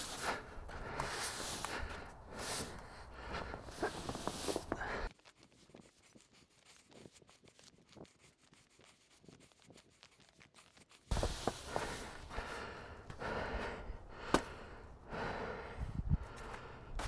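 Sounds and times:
push broom sweeping snow: 0:00.0 - 0:05.1, 0:11.1 - 0:12.4.

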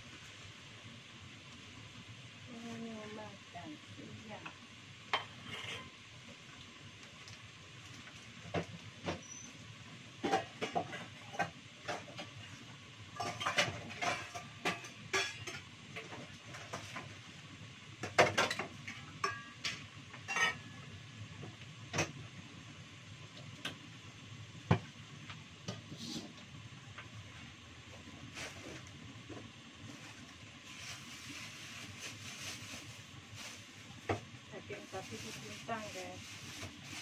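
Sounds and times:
faint steady hiss: 0:00.0 - 0:37.0
metal dishes clinking and knocking: 0:13.2 - 0:15.7, 0:18.2 - 0:20.7.

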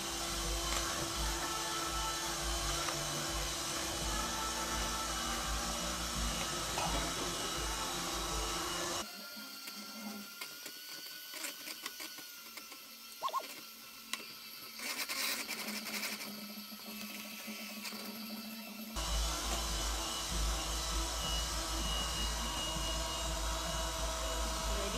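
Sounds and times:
electric hand mixer running: 0:00.0 - 0:24.9.

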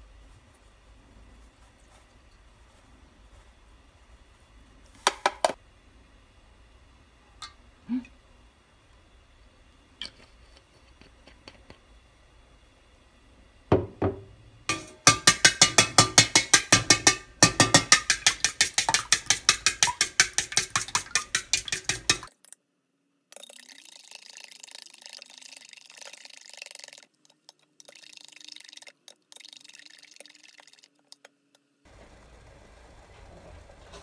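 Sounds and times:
soft stirring: 0:14.7 - 0:22.3
spoon clinking against metal bowl: 0:14.7 - 0:22.3.

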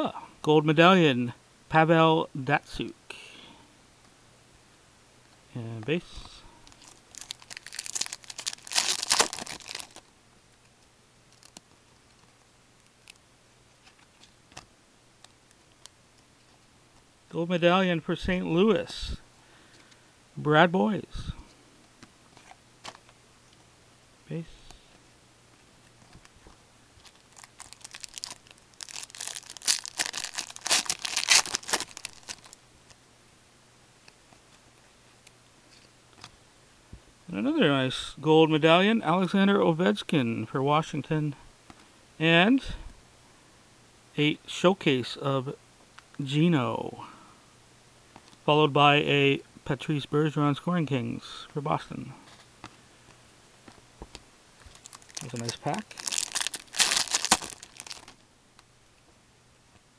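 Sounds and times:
plastic wrapper crinkling and tearing: 0:06.7 - 0:10.0, 0:11.3 - 0:11.6, 0:27.0 - 0:32.6, 0:54.6 - 0:58.2.

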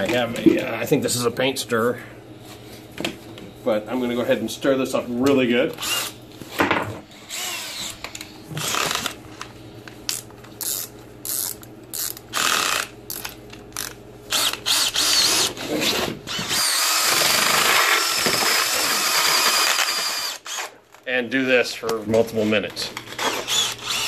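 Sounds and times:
drill mixing sand in bucket: 0:14.3 - 0:20.7.

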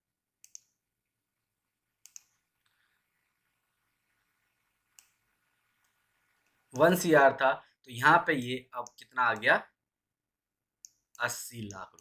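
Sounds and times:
faint computer mouse clicks: 0:00.4 - 0:00.8, 0:02.0 - 0:02.4.

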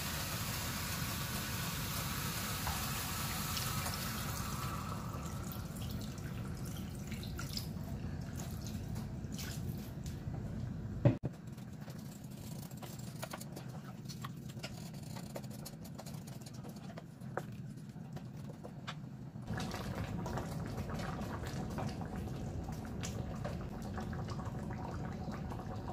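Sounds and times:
water trickling into a pan: 0:00.0 - 0:09.0
wooden spoon stirring: 0:11.3 - 0:19.0
sauce simmering with pops: 0:19.4 - 0:25.9.

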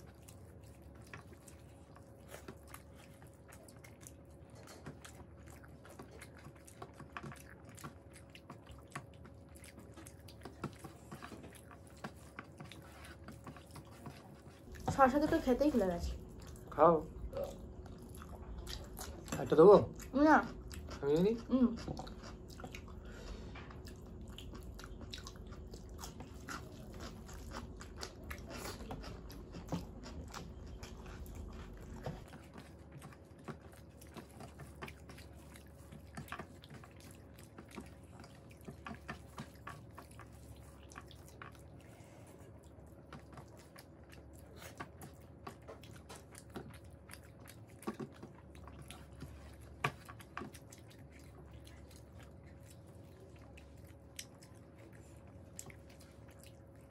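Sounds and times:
wet chewing and mouth clicks: 0:00.0 - 0:56.9.

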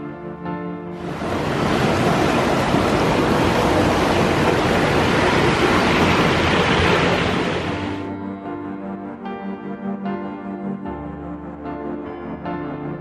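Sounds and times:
background music: 0:00.0 - 0:13.0
rushing water: 0:01.0 - 0:08.1.

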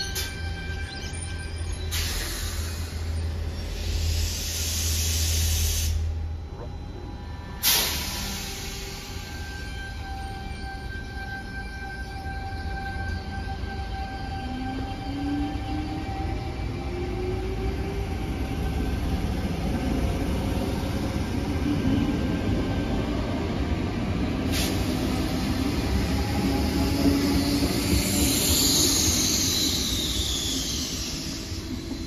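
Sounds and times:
train wheels rumbling on rail: 0:01.9 - 0:32.0
high wheel squeal: 0:24.6 - 0:32.0.

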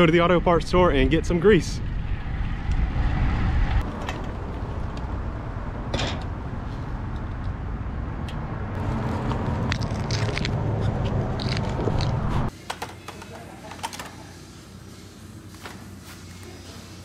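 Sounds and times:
wind: 0:00.0 - 0:12.6
road traffic: 0:00.7 - 0:12.6.

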